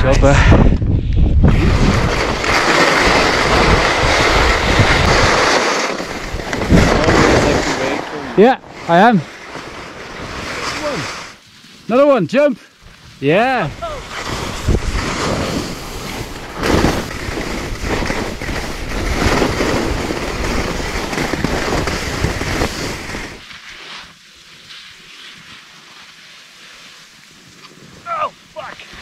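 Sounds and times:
wind buffeting microphone: 0.0 - 8.8, 13.6 - 23.4
skis scraping over snow: 1.4 - 29.0.

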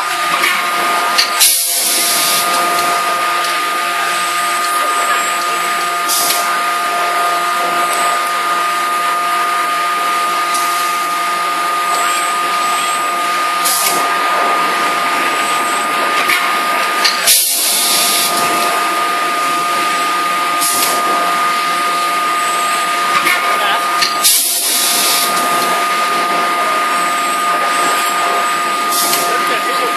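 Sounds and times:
forging hammer whirring hiss: 1.4 - 2.5.

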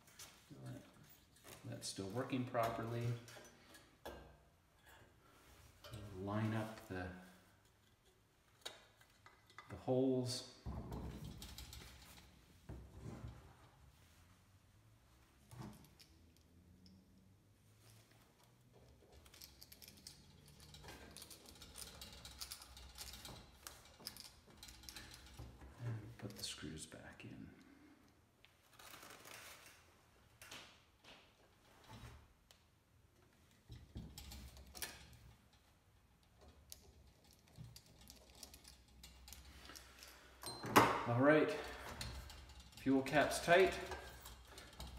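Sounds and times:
small metal parts clicking and scraping: 17.9 - 25.6, 36.2 - 40.6, 41.3 - 44.9.

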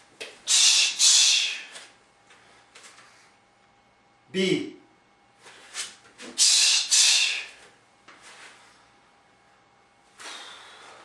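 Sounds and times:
short hissing breath bursts: 0.5 - 1.8, 6.4 - 7.6.

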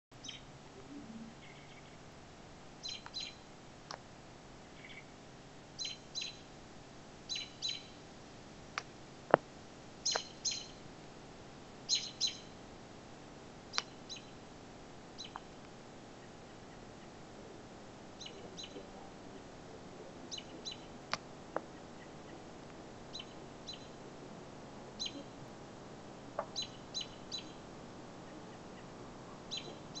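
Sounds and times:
bird chirping: 0.1 - 2.0, 2.8 - 3.5, 4.6 - 5.2, 5.8 - 6.5, 7.3 - 8.0, 10.0 - 10.8, 11.9 - 12.6, 13.7 - 14.4, 15.2 - 15.5, 18.1 - 19.5, 20.2 - 21.0, 23.1 - 24.0, 25.0 - 25.4, 26.4 - 30.0.

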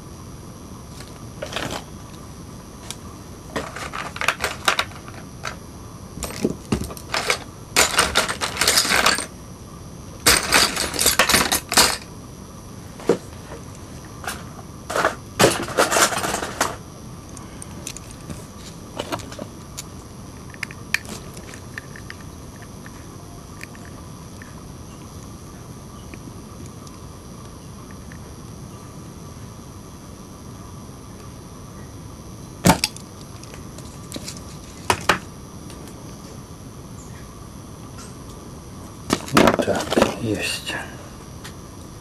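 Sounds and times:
small tools clicking and clattering: 3.6 - 5.6, 6.2 - 9.3, 10.3 - 12.1.

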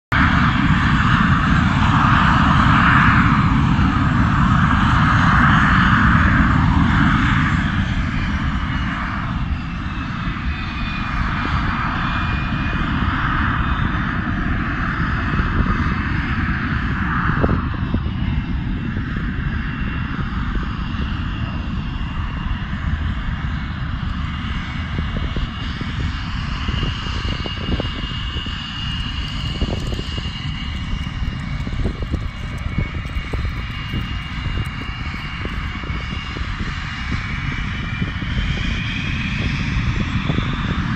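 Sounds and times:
jet engine rumble with whine: 0.1 - 40.9.

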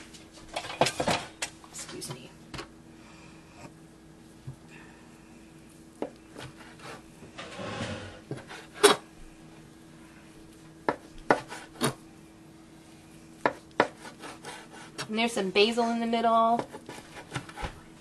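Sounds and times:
knife sawing through food: 6.4 - 7.0, 7.6 - 9.0, 13.8 - 15.0.

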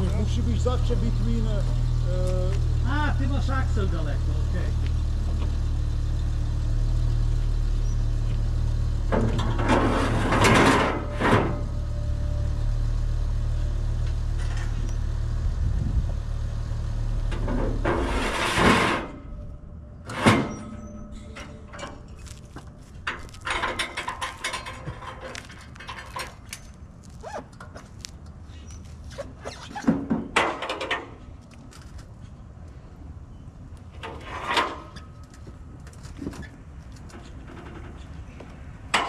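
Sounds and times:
vehicle engine idling: 0.0 - 18.4.

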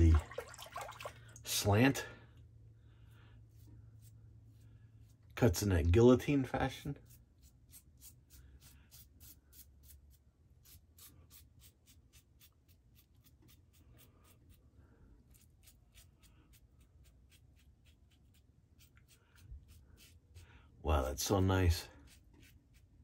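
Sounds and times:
razor scraping stubble: 3.6 - 14.6, 15.3 - 20.4, 22.0 - 23.0.

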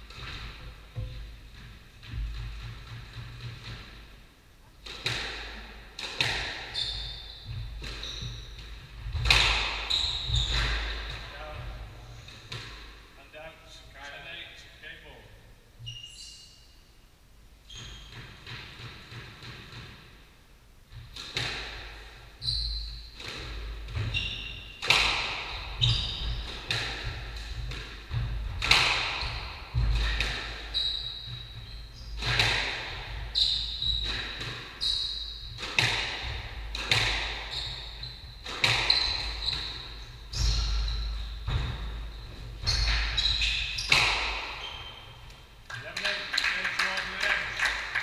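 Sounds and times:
squash ball knocking echoing: 0.0 - 4.1, 4.8 - 6.8, 7.4 - 13.0, 24.8 - 34.8, 35.5 - 45.4
shoes squeaking on wooden floor: 6.7 - 12.4, 15.8 - 16.6, 17.7 - 18.4, 22.4 - 32.4, 33.1 - 46.0.

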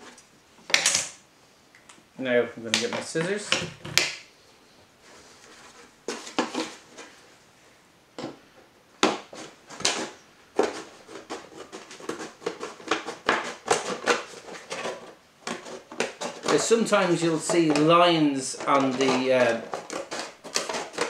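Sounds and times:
scissors cutting plastic bottle: 9.8 - 17.9, 18.5 - 21.0.

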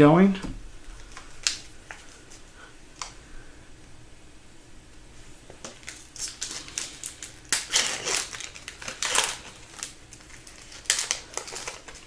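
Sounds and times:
cards being handled: 5.5 - 12.0
foil wrapper crinkling and tearing: 5.6 - 12.0.

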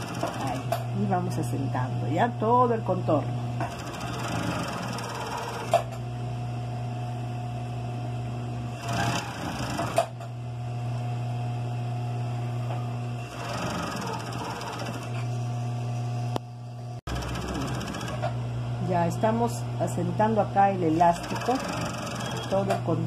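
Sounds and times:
sewing machine running: 0.0 - 0.7, 3.6 - 5.9, 8.7 - 10.1, 13.2 - 15.2, 17.1 - 18.4, 20.9 - 22.8.

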